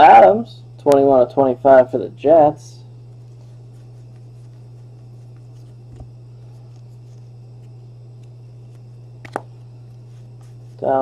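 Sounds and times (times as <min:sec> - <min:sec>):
low hum: 0:00.0 - 0:11.0
trading cards sliding and rustling: 0:03.1 - 0:10.9.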